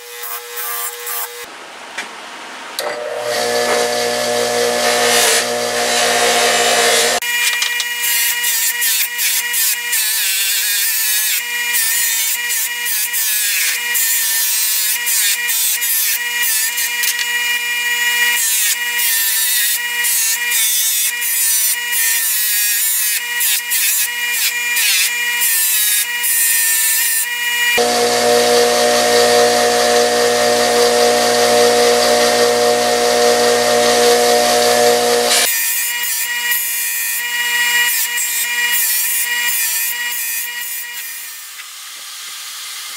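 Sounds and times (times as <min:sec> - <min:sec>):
bench grinder motor hum: 0:02.8 - 0:07.2, 0:27.8 - 0:35.5
metal scraping on grinding wheel: 0:27.8 - 0:35.5.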